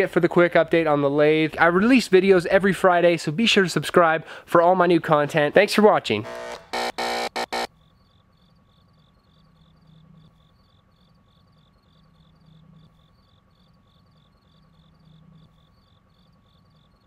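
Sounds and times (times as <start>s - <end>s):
loud buzzing bursts: 6.2s - 7.7s
faint cricket chirping: 7.7s - 17.0s.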